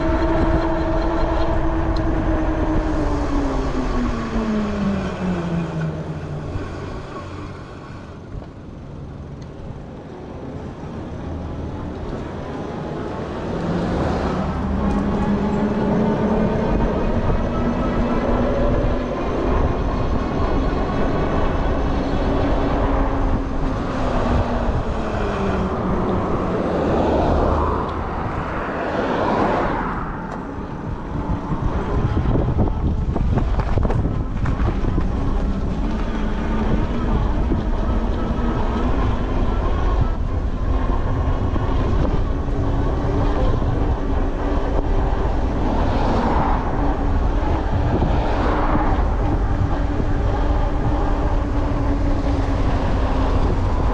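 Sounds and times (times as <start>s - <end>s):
bike tyres rumbling on pavement: 30.8s - 53.9s.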